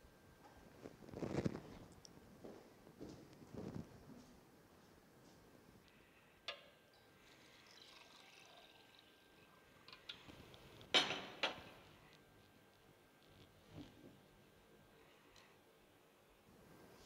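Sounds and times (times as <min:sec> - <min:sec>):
water trickling into glass: 0:07.3 - 0:09.7.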